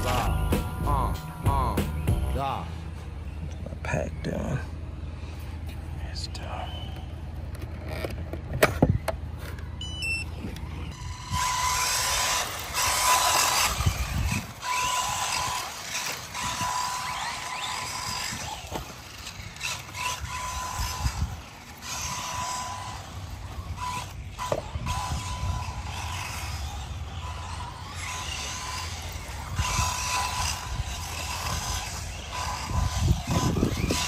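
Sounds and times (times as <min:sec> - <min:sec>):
rc car motor whine: 0:00.0 - 0:03.3, 0:06.6 - 0:34.0
rising electronic beeps: 0:00.0 - 0:03.3, 0:09.7 - 0:11.6.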